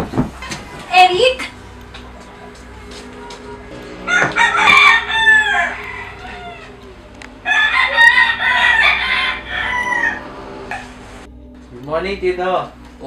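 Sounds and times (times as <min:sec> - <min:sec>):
rooster crowing: 0:03.5 - 0:11.2.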